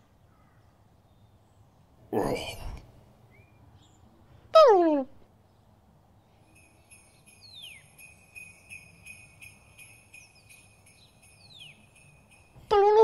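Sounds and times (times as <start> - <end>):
sleigh bells jingling: 6.3 - 13.0.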